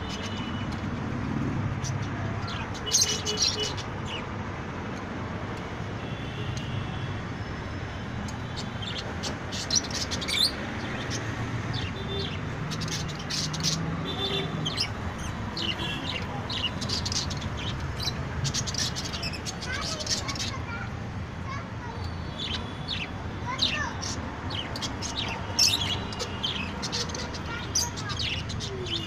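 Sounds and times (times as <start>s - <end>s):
parrots chirping: 8.4s - 20.6s.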